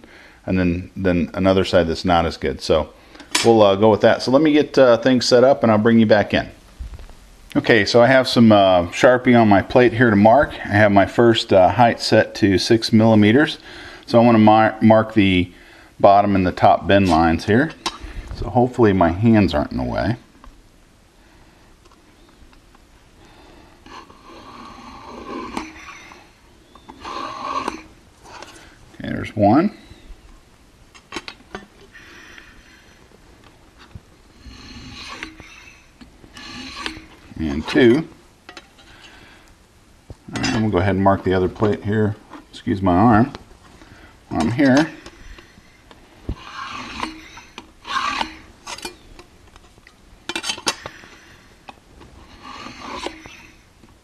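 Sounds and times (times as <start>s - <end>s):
metal scriber scraping steel plate: 23.8s - 26.2s, 26.8s - 28.6s, 34.4s - 35.8s, 36.4s - 37.8s, 40.3s - 40.8s, 44.3s - 45.6s, 46.3s - 49.1s, 50.3s - 51.1s, 52.2s - 53.6s.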